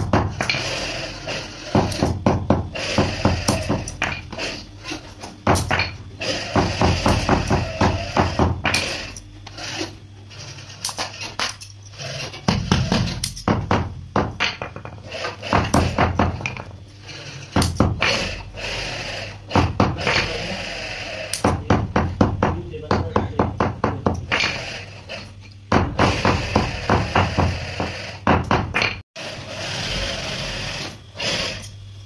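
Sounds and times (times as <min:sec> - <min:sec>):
wooden mallet pounding gloves: 0:00.0 - 0:00.6, 0:01.7 - 0:04.4, 0:05.4 - 0:08.9, 0:12.5 - 0:16.7, 0:17.6 - 0:18.2, 0:19.5 - 0:20.4, 0:21.4 - 0:24.6, 0:25.7 - 0:29.0
steady low hum: 0:00.0 - 0:32.0.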